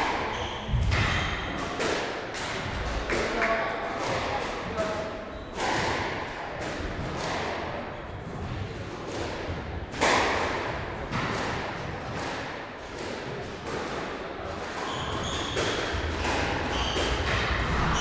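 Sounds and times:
squash ball striking walls: 0.0s - 18.0s.

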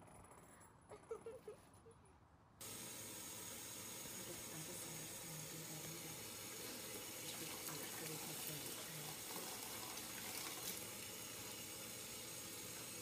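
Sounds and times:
steady hiss: 2.6s - 13.0s.

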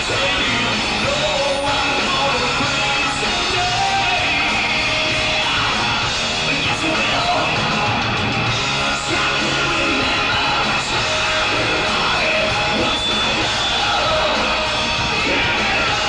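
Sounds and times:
rock band playing live: 0.0s - 16.0s.

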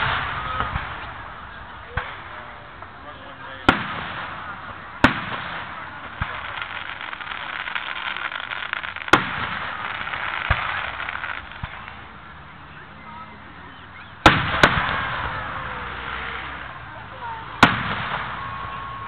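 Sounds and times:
firework bang: 0.0s - 3.0s, 3.6s - 12.1s, 14.2s - 19.0s
background hiss: 0.0s - 19.0s
low firework thumps: 3.7s - 12.0s.

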